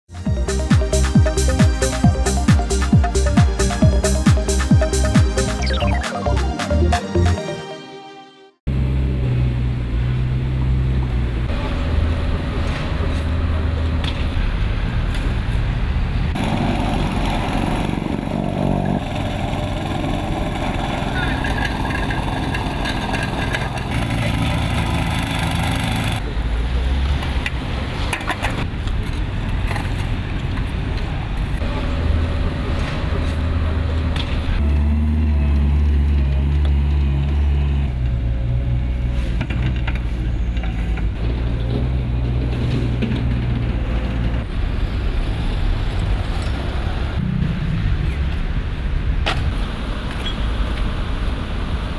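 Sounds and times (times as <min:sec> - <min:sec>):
diesel engine droning: 0:08.7 - 0:27.8, 0:31.2 - 0:51.9
plate compactor engine running: 0:16.4 - 0:26.2.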